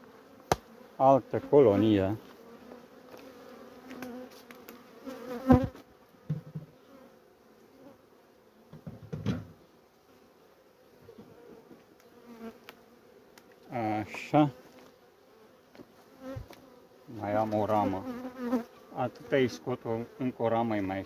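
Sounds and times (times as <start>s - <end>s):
honeybees buzzing: 0.0s - 21.0s.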